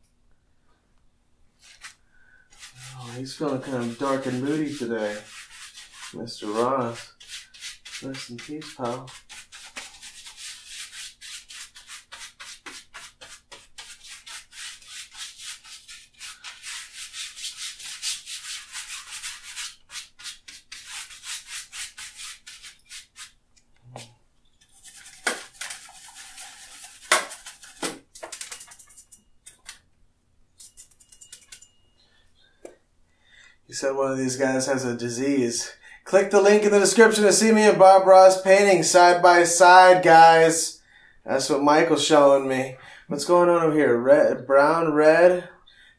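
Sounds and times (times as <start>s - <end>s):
brush scrubbing on canvas: 2.5s - 23.4s, 24.8s - 27.8s.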